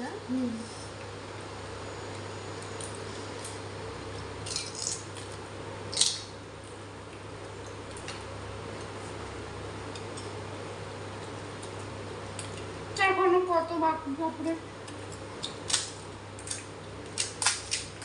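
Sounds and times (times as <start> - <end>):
steady low hum: 0.0 - 18.0
crisp shells crunching while eating: 4.4 - 6.3, 14.8 - 18.0.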